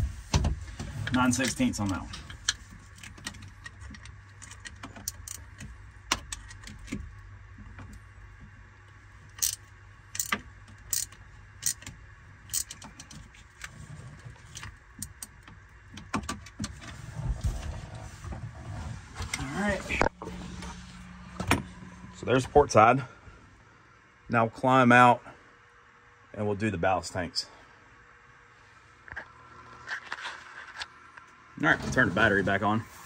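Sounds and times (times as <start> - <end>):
faint low hum: 0.0 - 33.0
metallic clicks of hand tools: 9.4 - 9.6.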